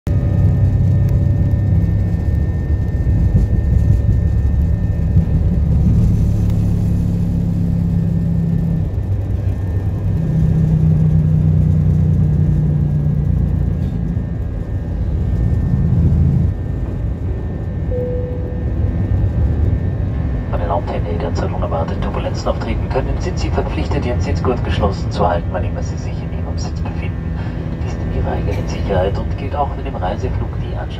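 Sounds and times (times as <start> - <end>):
jet engines at takeoff power: 0.1 - 30.9
wheels rumbling on runway: 0.1 - 30.9.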